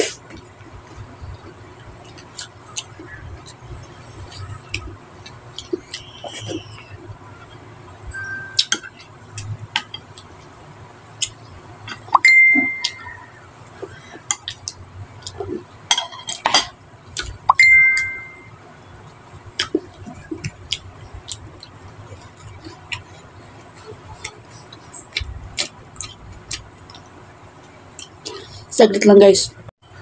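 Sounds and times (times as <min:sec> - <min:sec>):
phone notification chimes: 0:12.2 - 0:13.0, 0:17.6 - 0:18.5
chewing mouth sounds: 0:19.6 - 0:27.1.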